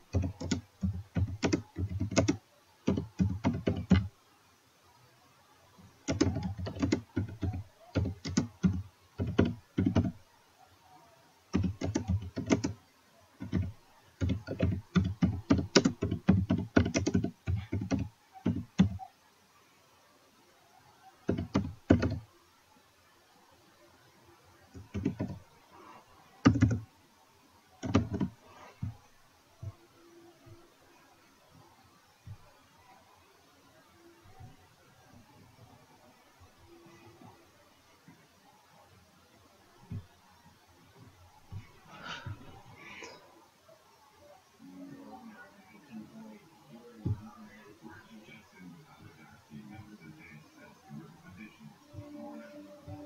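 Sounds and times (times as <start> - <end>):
computer keyboard typing: 0.0 - 4.1, 6.0 - 10.2, 11.5 - 12.8, 13.4 - 19.1, 21.2 - 22.2, 24.7 - 25.4, 26.4 - 26.8, 27.8 - 28.3.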